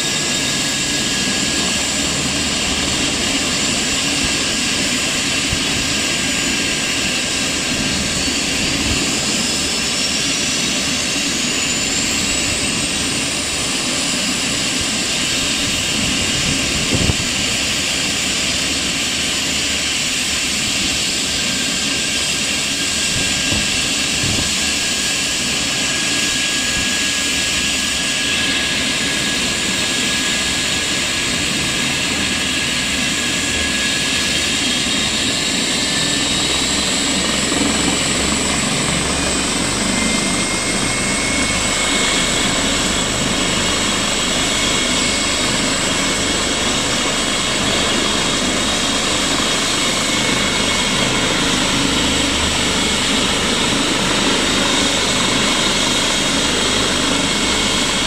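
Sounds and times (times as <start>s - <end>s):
helicopter rotor noise: 0.0s - 58.0s
helicopter turbine whine: 0.0s - 58.0s.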